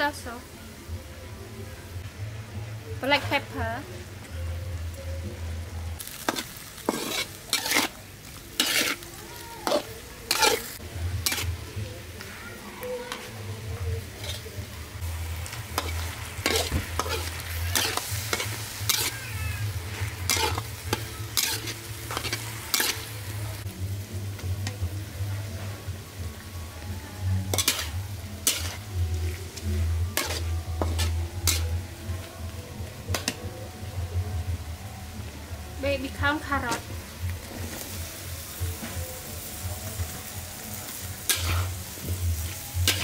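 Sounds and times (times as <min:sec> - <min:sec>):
pork sizzling in oil: 0:03.0 - 0:43.0
metal spatula scraping a wok: 0:06.0 - 0:11.6, 0:14.0 - 0:23.4, 0:27.4 - 0:32.0, 0:40.6 - 0:43.0.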